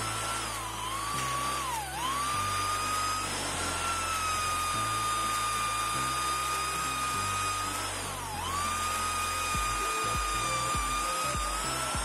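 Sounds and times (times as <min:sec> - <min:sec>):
drill hole saw cutting plywood: 0:00.0 - 0:12.0.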